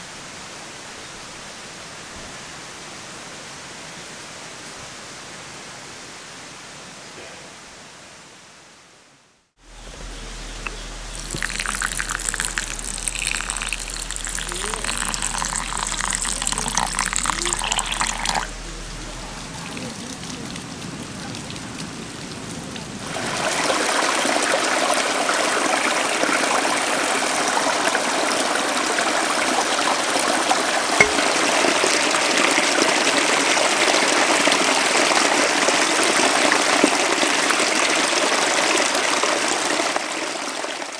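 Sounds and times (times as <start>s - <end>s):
stream running over rocks: 9.6s - 40.9s.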